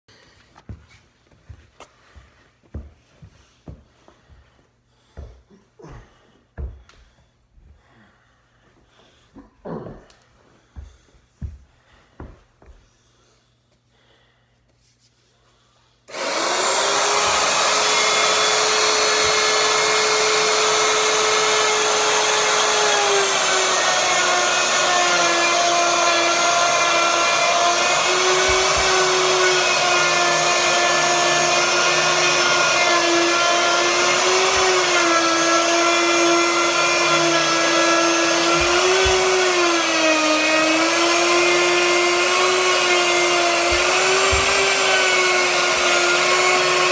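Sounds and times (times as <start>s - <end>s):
router whining cutting wood: 16.1s - 46.9s.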